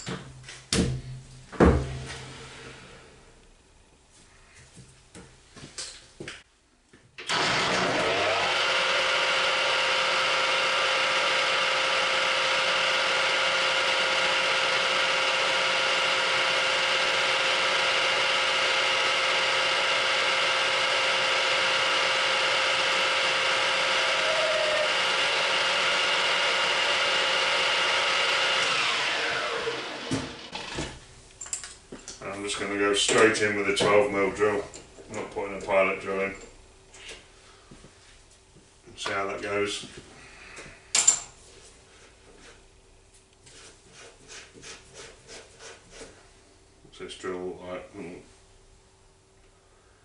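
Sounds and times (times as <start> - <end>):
metal lathe whining: 7.3 - 30.9.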